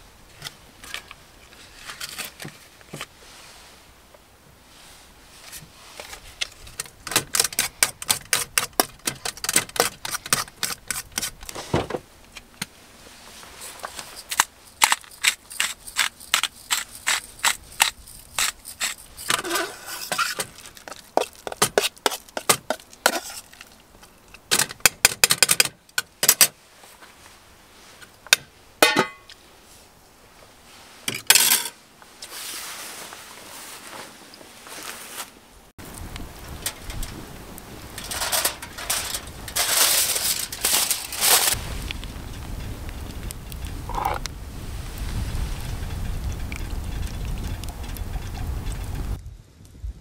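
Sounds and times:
metal utensil scraping saucepan: 15.2s - 20.5s.

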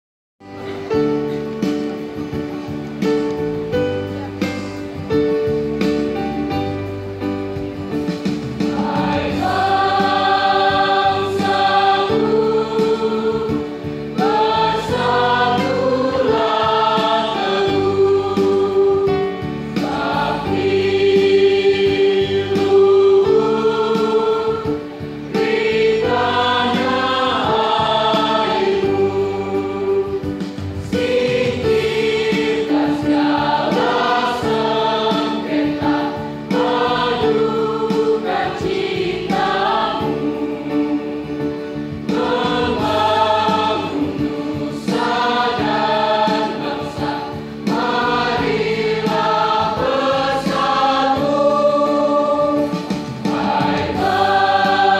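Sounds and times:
choir singing: 8.6s - 54.9s.

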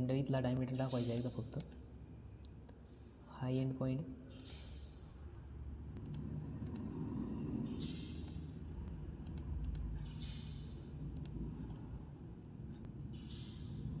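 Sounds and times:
steady low hum: 0.0s - 14.0s
computer mouse clicking: 4.3s - 4.9s, 6.0s - 11.8s.

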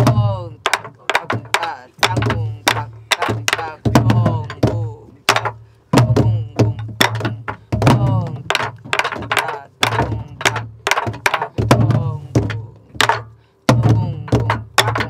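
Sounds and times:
deep drum booms: 0.0s - 15.0s
sticks clacking: 0.6s - 3.8s, 5.2s - 5.6s, 8.2s - 11.6s, 12.3s - 13.4s, 14.2s - 15.0s.

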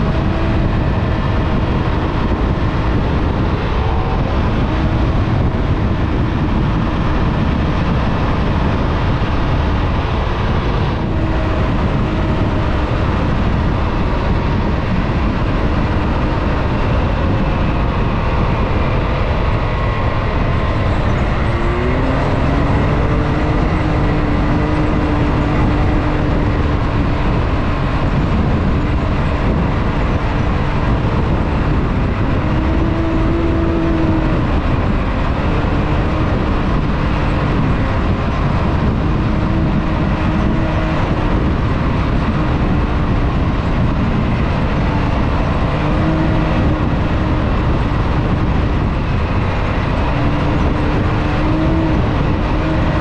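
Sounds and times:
terrain noise: 0.0s - 53.0s
vehicle engine running: 0.0s - 53.0s
wind noise: 0.0s - 53.0s.

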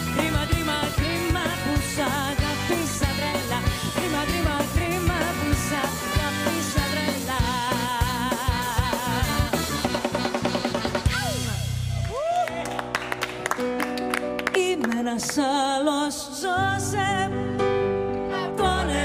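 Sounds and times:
woman singing: 0.0s - 10.0s, 14.5s - 17.6s, 18.3s - 19.0s
live band playing pop song: 0.0s - 11.9s
drum kit beat: 0.0s - 12.4s.

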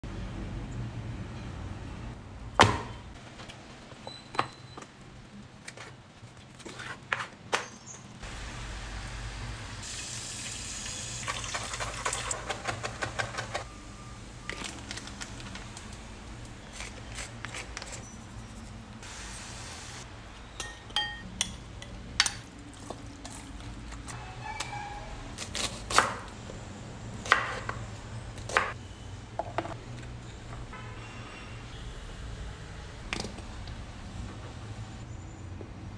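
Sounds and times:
glass bowl and metal pan clinking: 20.6s - 21.6s.

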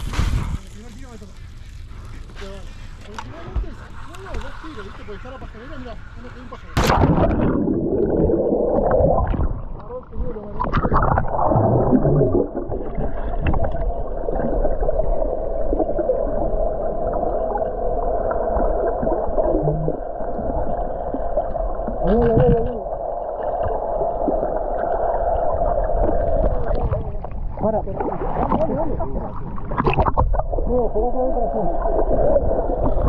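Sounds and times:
water noise: 0.0s - 33.0s
wind: 0.0s - 33.0s
boat motor droning: 0.8s - 6.8s.

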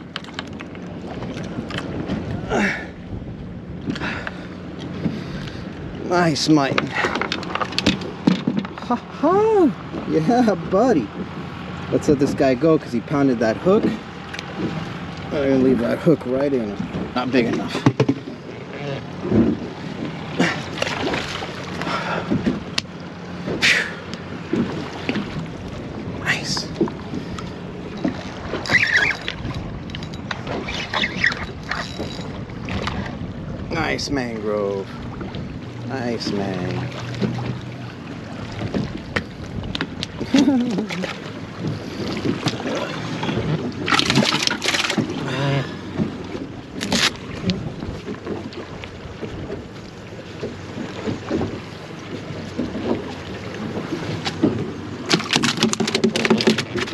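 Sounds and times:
water lapping around boat: 0.0s - 56.9s
wind: 0.0s - 56.9s
fish splashing into water: 42.3s - 45.5s.

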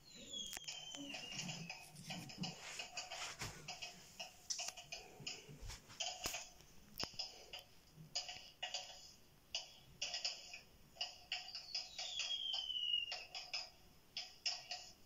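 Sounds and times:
clock ticking: 0.0s - 15.0s.

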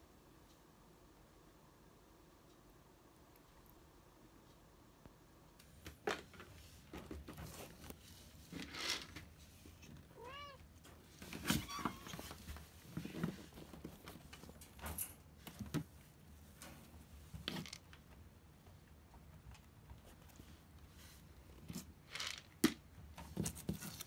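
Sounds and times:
cat meowing: 10.1s - 10.6s.

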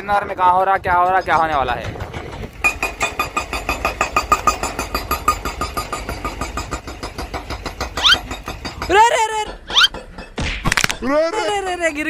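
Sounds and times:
pulsing machinery engine: 0.8s - 10.1s.

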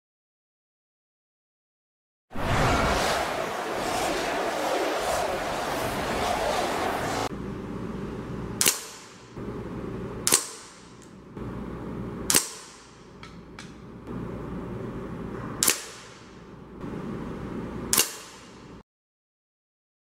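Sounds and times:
air rifle shots: 8.6s - 9.3s, 10.2s - 11.0s, 12.3s - 13.0s, 15.6s - 16.3s, 17.9s - 18.6s.

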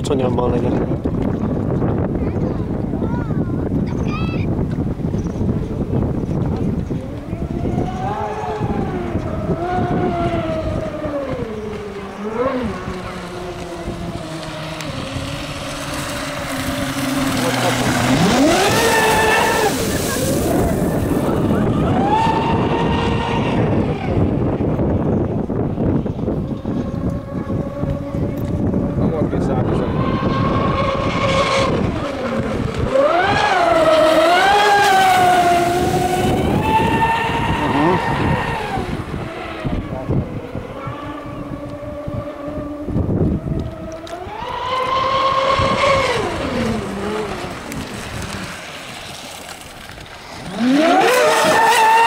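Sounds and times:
electric boat motors whining: 5.4s - 52.0s
rush of water spray: 12.7s - 23.2s, 33.2s - 39.6s, 44.7s - 52.0s.

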